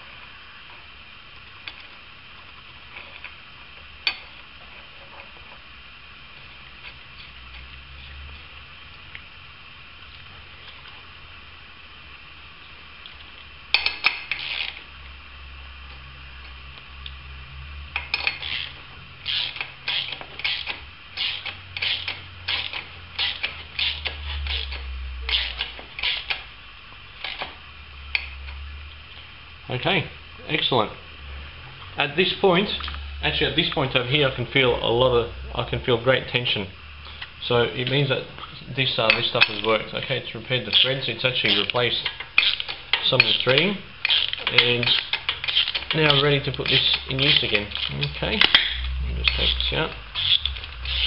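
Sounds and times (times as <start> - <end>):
steady low hum: 0.0 - 51.0
socket ratchet clicking: 18.0 - 26.5, 41.5 - 51.0.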